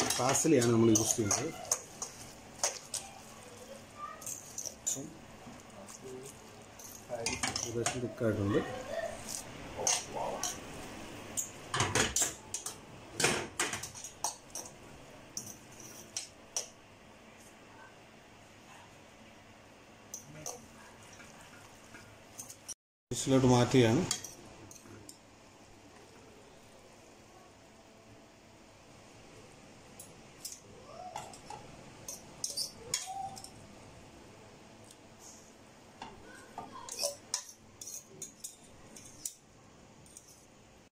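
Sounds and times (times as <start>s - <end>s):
fork scraping a frying pan: 0.0s - 3.2s, 15.4s - 16.7s, 31.4s - 33.6s, 36.8s - 39.4s, 40.0s - 40.5s.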